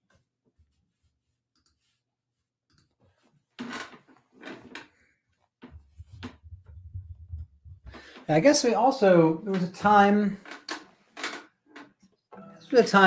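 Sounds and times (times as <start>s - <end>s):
rustling near microphone: 4.2s - 8.2s
low rumble: 5.8s - 8.0s.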